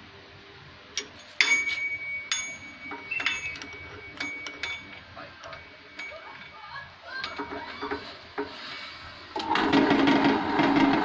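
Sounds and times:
sharp metallic clicks and clinks: 1.0 - 6.6.

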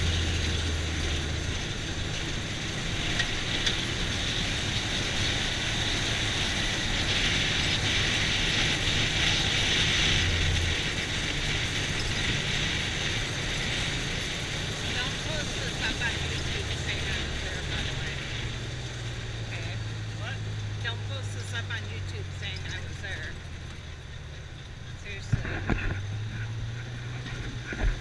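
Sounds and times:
open cab rattling: 0.0 - 28.0
tyres and wind hissing: 0.0 - 28.0
vehicle engine hum: 0.0 - 28.0.

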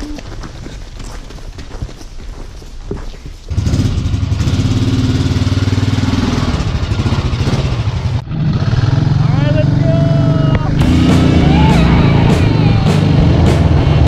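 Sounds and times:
atv engine running: 3.5 - 14.0.

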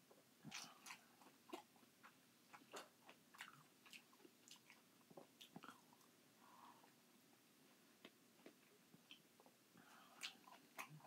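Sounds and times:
wet chewing and mouth smacks: 0.4 - 6.1, 8.0 - 11.0.

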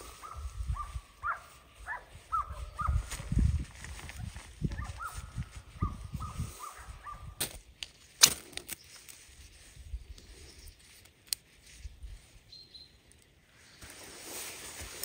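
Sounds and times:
distant dogs baying: 0.0 - 3.1, 4.8 - 7.4
wind rumble on microphone: 0.0 - 7.6.

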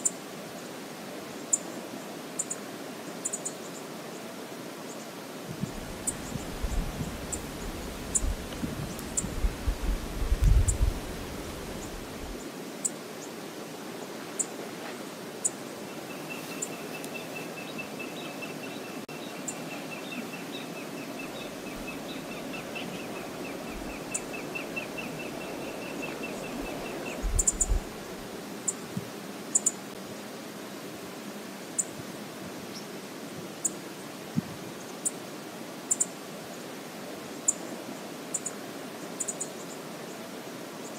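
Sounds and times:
wind on microphone: 5.4 - 12.4, 21.2 - 29.2.

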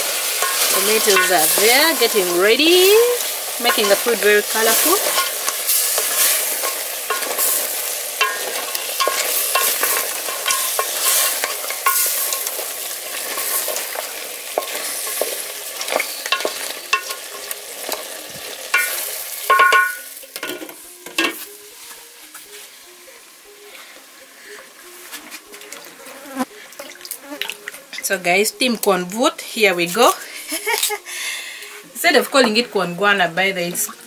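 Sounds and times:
meat sizzling in a pot: 0.0 - 34.0
metal lid clanking: 0.4 - 2.1, 5.0 - 7.6, 8.2 - 12.6, 18.7 - 21.4.

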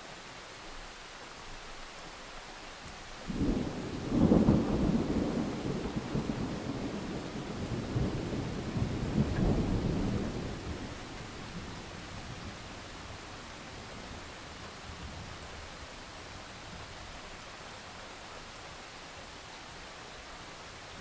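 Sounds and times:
rain hissing: 0.0 - 21.0
thunder rumbling: 3.3 - 13.3.

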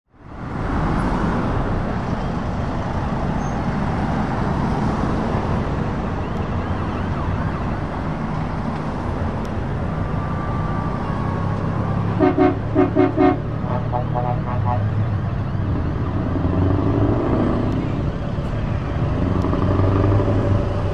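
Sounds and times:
trucks and cars driving past: 0.1 - 20.9
horn toots: 12.1 - 15.1.

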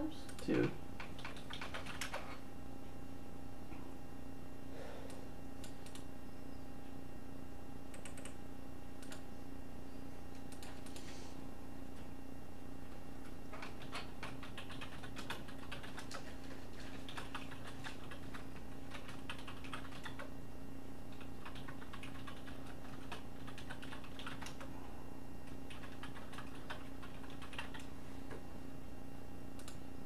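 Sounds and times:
typing on a keyboard: 0.3 - 2.4, 5.6 - 6.1, 7.9 - 8.4, 9.0 - 9.2, 10.3 - 11.0, 13.2 - 20.3, 21.1 - 24.7, 25.4 - 27.9, 29.6 - 29.8.

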